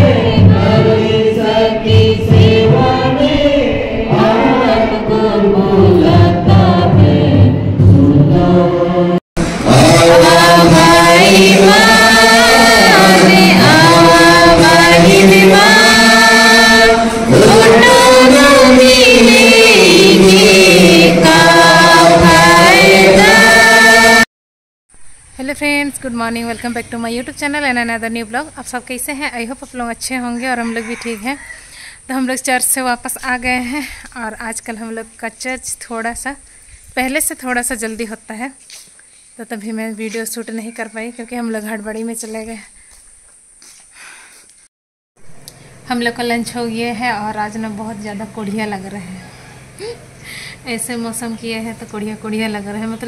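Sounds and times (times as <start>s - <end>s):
choir singing: 0.0s - 24.3s.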